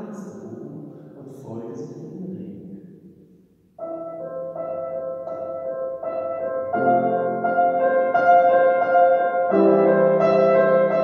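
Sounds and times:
piano chords: 3.8s - 11.0s.

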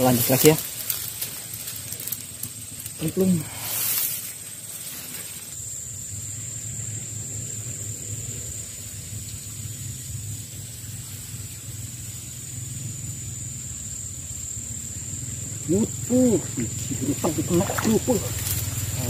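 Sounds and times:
high-pitched insect drone: 0.0s - 19.0s
low steady rumble: 3.9s - 19.0s.

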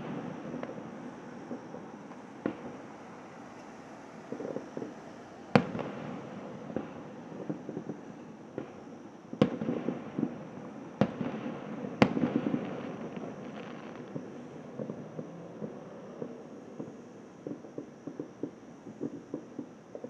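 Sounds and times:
distant fireworks booms: 0.0s - 20.0s
small crackling pops: 12.0s - 20.0s.

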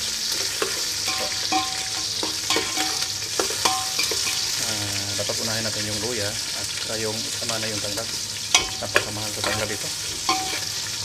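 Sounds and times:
food sizzling in hot oil: 0.0s - 11.0s
metal spoon clinking pot: 0.6s - 4.5s, 8.5s - 10.7s.

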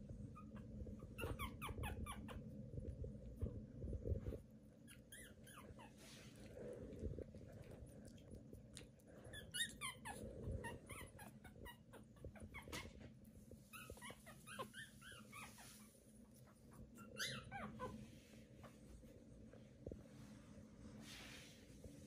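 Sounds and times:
puppies whimpering and squeaking: 0.2s - 2.6s, 4.8s - 6.2s, 9.3s - 18.2s.

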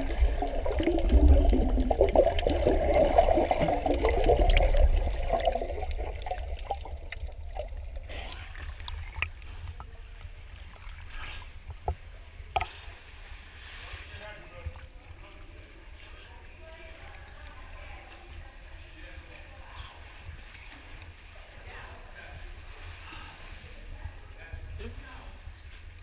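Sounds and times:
low rumble: 0.0s - 9.8s
underwater bubbling and gurgling: 0.0s - 12.7s.

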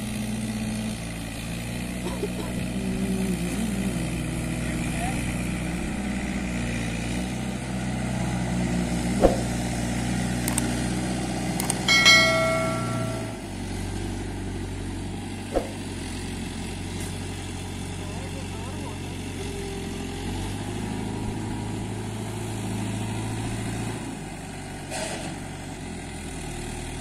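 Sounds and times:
tractor diesel engine running: 0.0s - 27.0s
sharp knocks: 9.2s - 9.5s
steady high tone: 11.9s - 13.5s.

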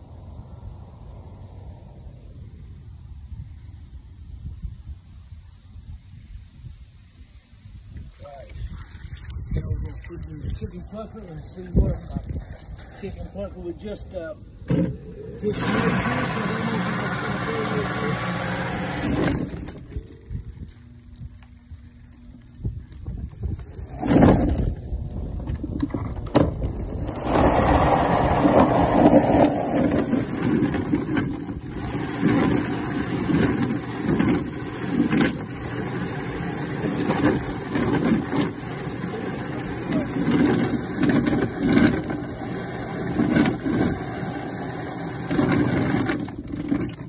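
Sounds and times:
chicken plucker motor spinning: 14.9s - 20.7s, 26.9s - 47.0s.

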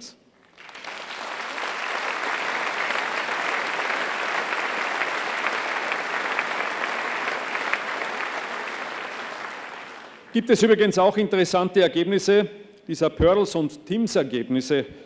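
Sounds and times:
audience applauding: 0.4s - 10.4s.

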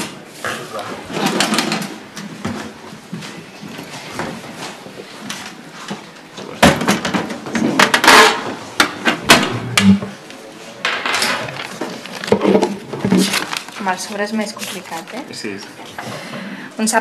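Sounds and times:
paper envelopes crinkling: 11.5s - 15.5s.

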